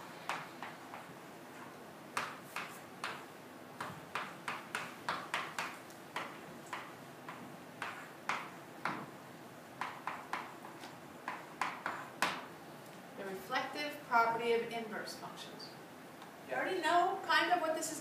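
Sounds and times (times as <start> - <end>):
chalk tapping and scraping on board: 0.3 - 9.0, 9.8 - 12.5.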